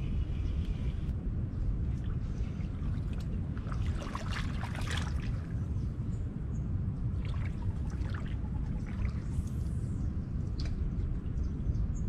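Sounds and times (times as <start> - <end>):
wind rumble on microphone: 0.0 - 12.0
water splashing around wading legs: 2.5 - 5.6, 7.2 - 9.5.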